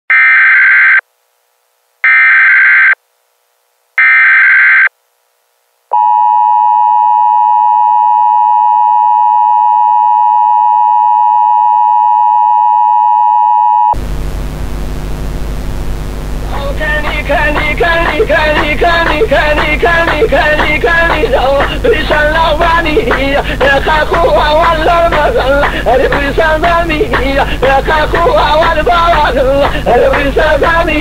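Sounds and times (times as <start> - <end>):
hiss with low hum: 14.0 - 31.0.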